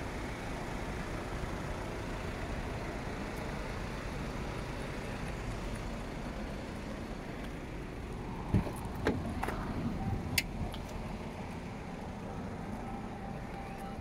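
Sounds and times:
traffic hum: 0:00.0 - 0:14.0
car door clicks and knocks: 0:08.5 - 0:09.6
car door latch thump: 0:08.5 - 0:09.6.

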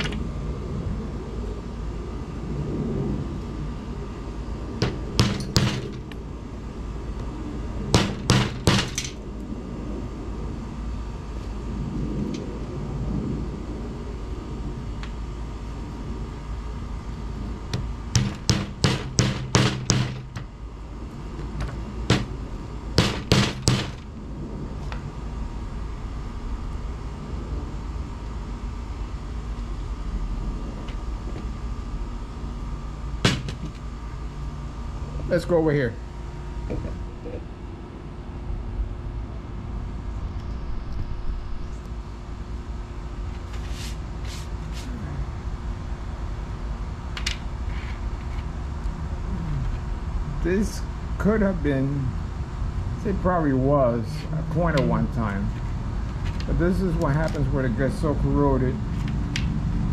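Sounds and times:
steady low hum: 0:00.0 - 0:59.9
hammer striking rusty lumps: 0:04.8 - 0:06.2, 0:08.0 - 0:09.1, 0:17.8 - 0:20.5, 0:22.1 - 0:22.4, 0:23.0 - 0:24.0.

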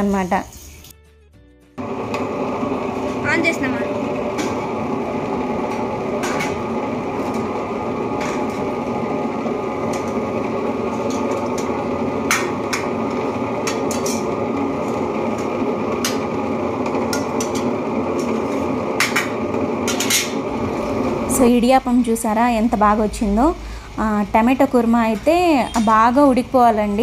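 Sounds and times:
wet grinder running: 0:01.8 - 0:27.0.

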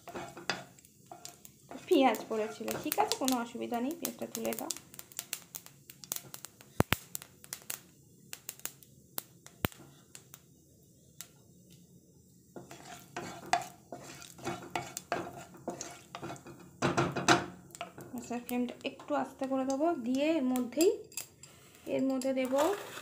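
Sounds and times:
wooden spatula scraping pan: 0:00.0 - 0:03.4, 0:12.6 - 0:20.2, 0:21.4 - 0:23.0
seeds clicking against pan: 0:00.0 - 0:10.4, 0:12.6 - 0:23.0
seeds sizzling in oil: 0:00.0 - 0:23.0.

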